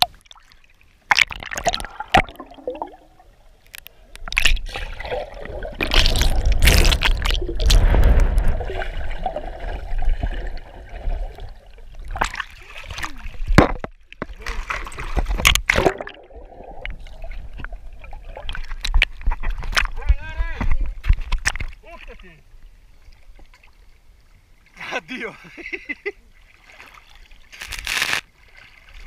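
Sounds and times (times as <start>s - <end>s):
water splashes: 0.0s - 22.4s, 26.2s - 29.0s
muffled underwater rush: 1.4s - 13.6s, 14.4s - 20.2s
sea water slapping and sloshing: 4.3s - 13.8s.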